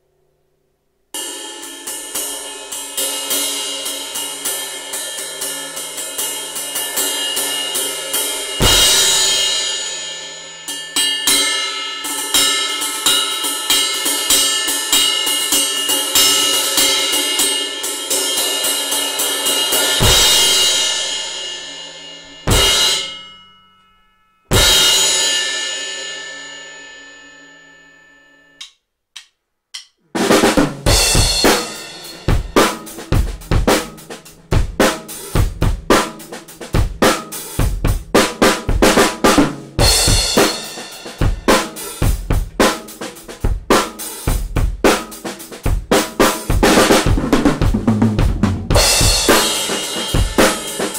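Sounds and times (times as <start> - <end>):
drum kit playing: 1.2 - 23.3, 24.5 - 26.2, 28.6 - 50.9
cymbal crashes: 1.2 - 23.6, 24.5 - 28.3, 30.8 - 34.2.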